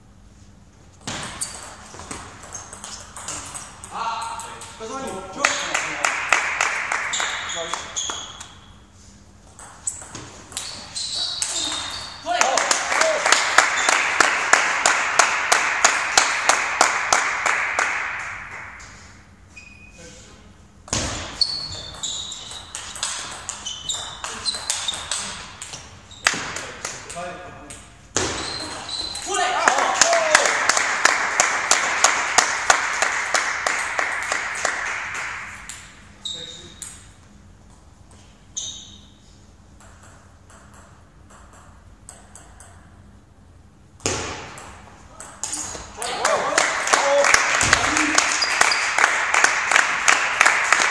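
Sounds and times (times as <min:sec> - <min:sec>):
table tennis ball bouncing: 0:01.0 - 0:08.6, 0:09.5 - 0:12.8, 0:20.8 - 0:29.3, 0:39.8 - 0:43.0, 0:44.0 - 0:45.8
spectators applauding: 0:12.3 - 0:18.3, 0:29.4 - 0:35.4, 0:46.1 - 0:50.9.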